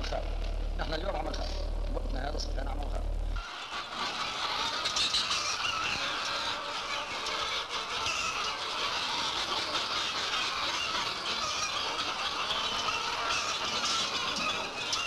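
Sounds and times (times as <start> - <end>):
chickens squawking: 3.3 - 15.0.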